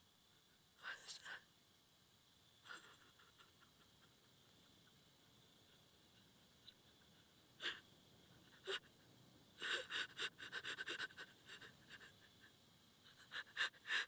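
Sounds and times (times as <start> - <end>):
woman crying: 9.6 - 14.0.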